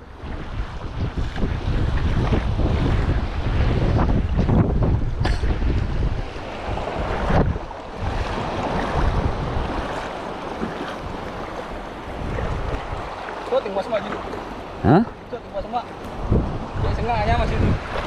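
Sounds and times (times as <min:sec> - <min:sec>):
wind buffeting microphone: 0:00.0 - 0:18.0
shallow water sloshing: 0:05.4 - 0:16.5.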